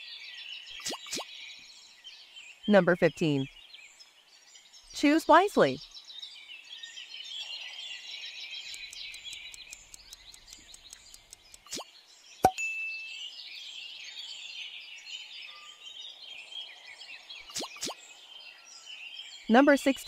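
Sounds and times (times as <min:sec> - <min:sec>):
birds chirping: 0:00.0 - 0:20.0
quick ticks: 0:08.6 - 0:11.8
brief ding: 0:12.4 - 0:13.2.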